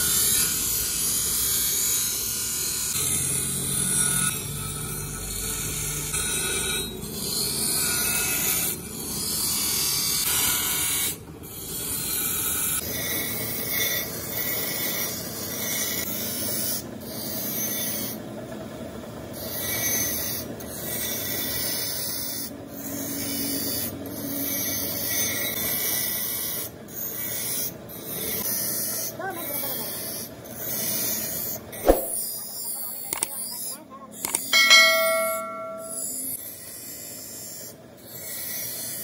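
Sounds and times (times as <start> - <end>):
bench grinder grinding steel: 0.0 - 18.2, 19.4 - 31.6.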